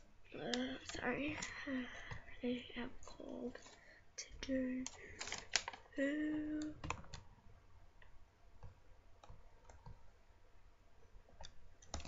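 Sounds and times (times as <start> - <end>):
paper clicks and ticks: 0.4 - 2.2, 4.4 - 5.8.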